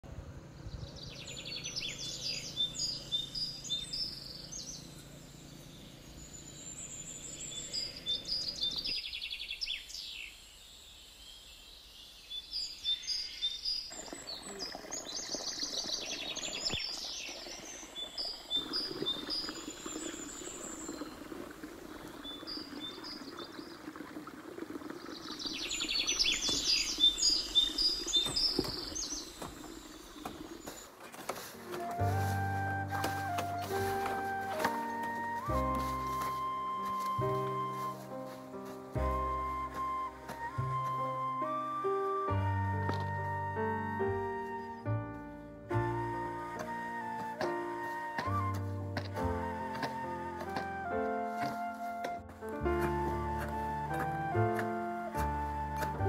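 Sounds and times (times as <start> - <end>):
birds chirping and singing: 0.6 - 10.4, 25.3 - 45.0
water pouring into a basin: 13.9 - 30.7.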